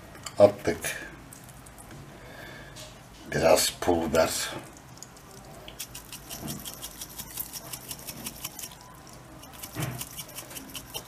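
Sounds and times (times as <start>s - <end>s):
butter bubbling and popping: 1.2s - 2.1s, 4.3s - 11.0s.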